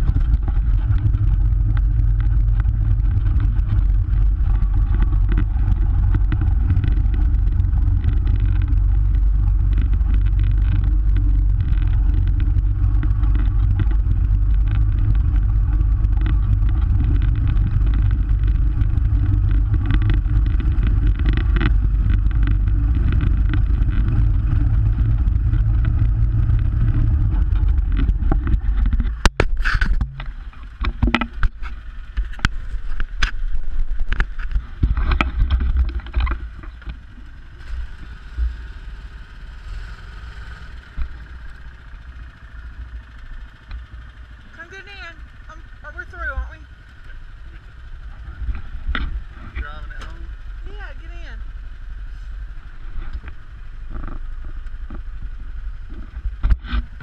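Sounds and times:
vehicle engine droning: 0.0s - 57.0s.

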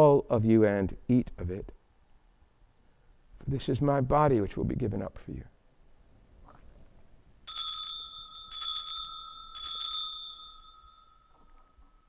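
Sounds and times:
altar bells ringing: 7.5s - 12.0s.

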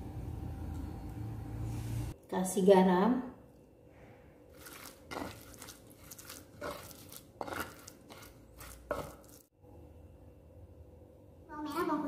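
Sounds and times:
pestle scraping and knocking in mortar: 4.5s - 9.5s.

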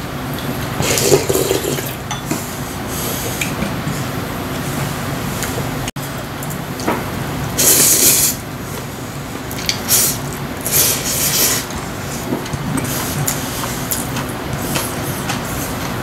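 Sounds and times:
person slurping noodles: 0.8s - 2.0s, 7.6s - 8.4s, 9.9s - 12.3s.

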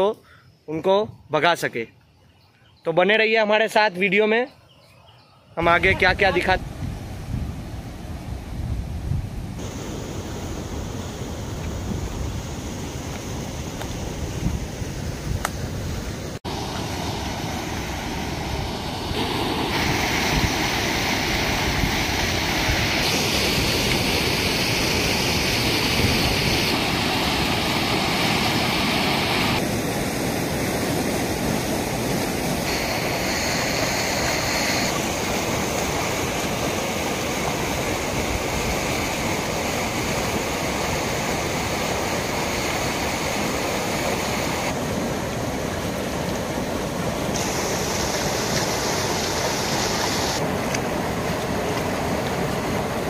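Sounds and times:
water rushing: 5.6s - 53.0s.

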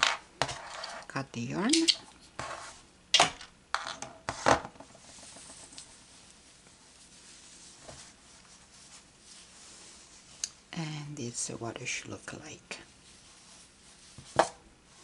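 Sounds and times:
faint fabric rustling: 5.0s - 10.8s, 12.7s - 15.0s.

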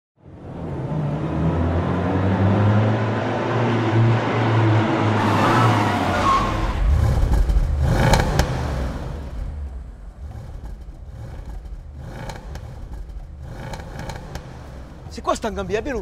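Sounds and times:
car engine revving: 0.2s - 16.0s.

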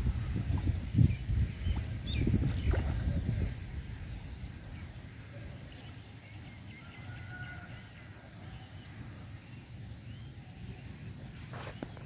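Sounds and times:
wind rumble on microphone: 0.0s - 5.0s.

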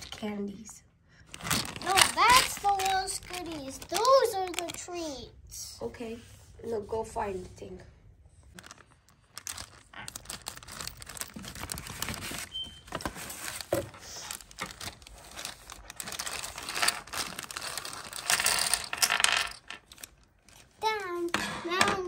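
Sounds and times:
plastic bag crinkling: 1.3s - 5.1s, 8.5s - 20.8s.

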